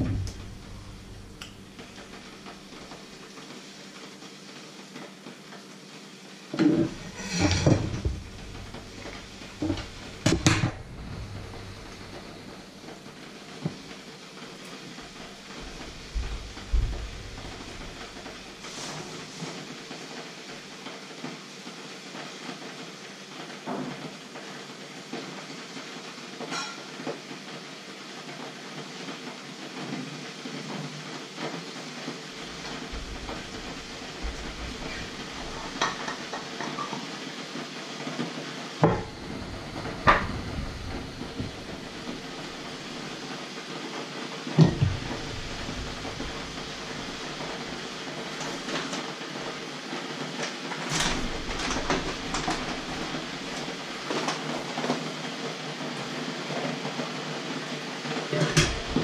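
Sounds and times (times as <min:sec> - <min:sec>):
kettle water heating hiss: 0:00.0 - 0:59.0
kitchen items knocking and clinking: 0:06.6 - 0:13.0, 0:26.5 - 0:26.8, 0:32.4 - 0:37.0, 0:38.8 - 0:43.1, 0:44.6 - 0:49.0, 0:50.9 - 0:54.3.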